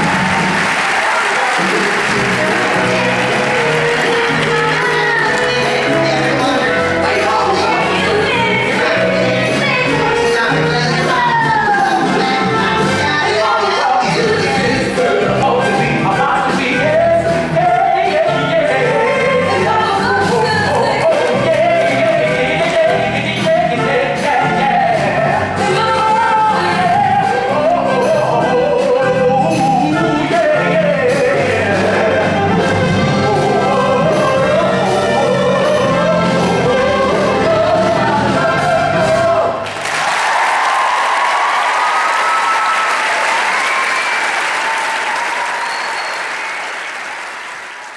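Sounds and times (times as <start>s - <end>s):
audience applauding: 0.0s - 8.2s, 39.6s - 47.9s
voices singing over a band: 2.1s - 39.6s.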